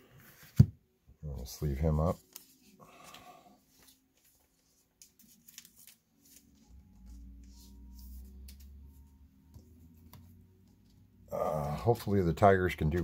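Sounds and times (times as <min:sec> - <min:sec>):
card rustling and clicking: 0:02.2 - 0:10.9.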